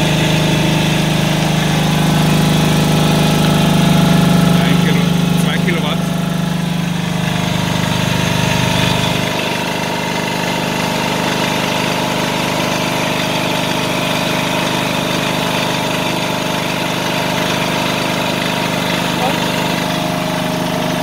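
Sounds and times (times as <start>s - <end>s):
generator engine humming: 0.0s - 21.0s.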